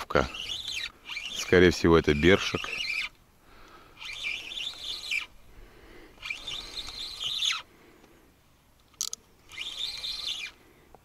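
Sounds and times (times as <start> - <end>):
spinning reel whirring: 0.0 - 3.2, 3.9 - 5.4, 6.2 - 7.7, 9.0 - 10.6.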